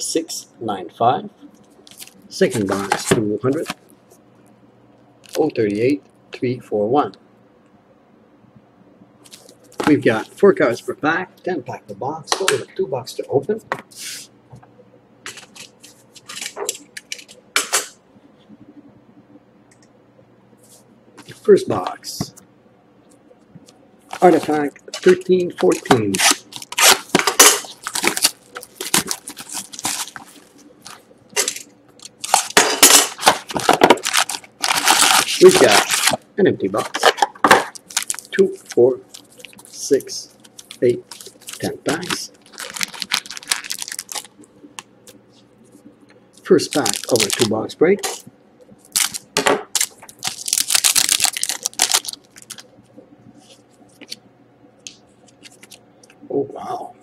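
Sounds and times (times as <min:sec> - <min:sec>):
plastic wrap crinkling: 0:24.1 - 0:36.2, 0:36.8 - 0:45.2, 0:46.5 - 0:48.2, 0:48.8 - 0:52.7.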